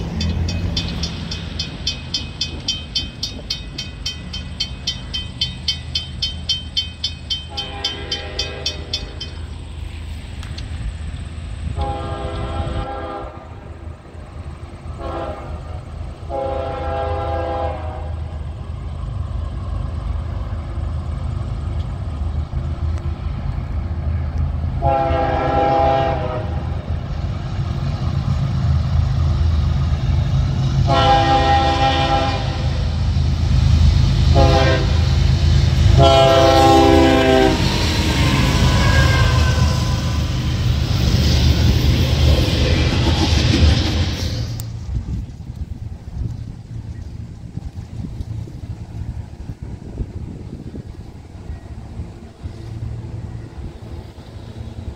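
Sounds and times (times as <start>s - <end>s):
railroad crossing bell ringing: 0.0s - 9.8s
locomotive engine rumble: 0.0s - 54.9s
locomotive horn: 7.3s - 9.4s, 11.7s - 13.9s, 15.0s - 18.4s, 24.7s - 26.9s, 30.8s - 33.0s, 34.3s - 35.2s, 35.8s - 40.7s.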